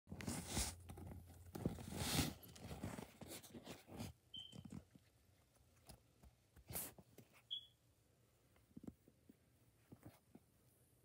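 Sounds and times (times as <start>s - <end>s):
crackling and rustling handling: 0.1s - 7.5s
high chirp: 7.5s - 7.8s.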